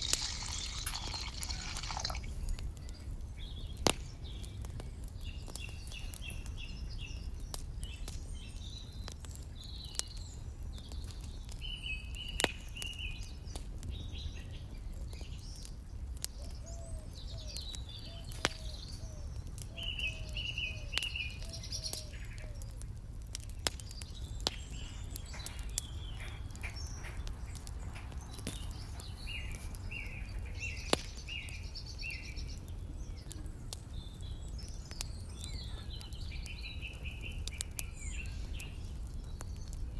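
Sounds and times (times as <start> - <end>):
birds chirping: 0.0 - 13.4, 23.4 - 39.9.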